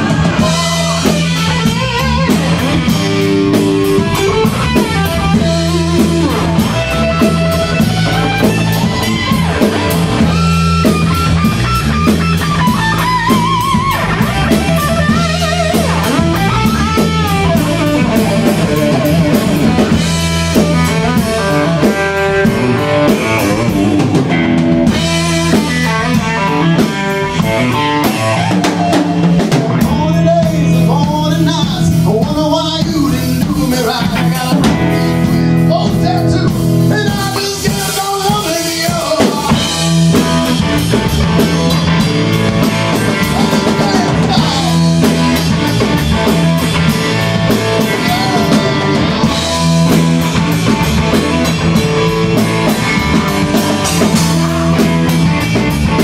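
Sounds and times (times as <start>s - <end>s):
man singing: 0.0s - 2.9s, 27.9s - 40.6s, 43.1s - 46.3s, 47.8s - 49.4s
rock band playing: 0.0s - 56.0s.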